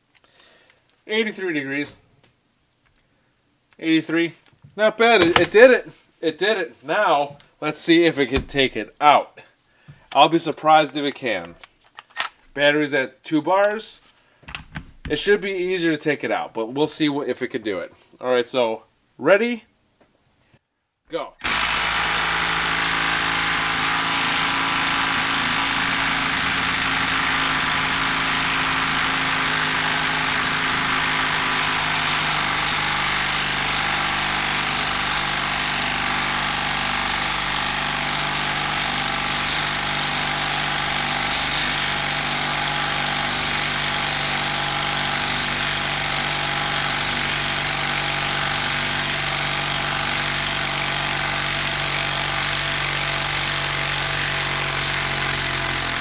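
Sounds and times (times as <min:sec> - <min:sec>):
impact driver hammering: 0:05.2 - 0:05.6, 0:08.4 - 0:08.8, 0:21.4 - 0:56.0.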